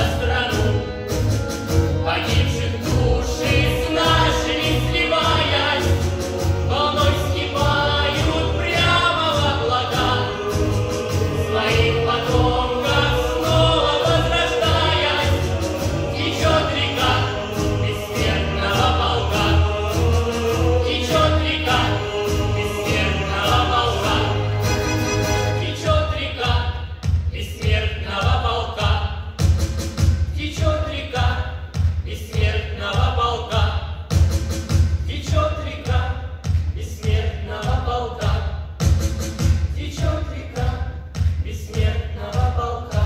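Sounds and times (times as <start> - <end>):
instrumental accompaniment with beat: 0.0 - 43.0
children's choir singing: 2.8 - 26.5.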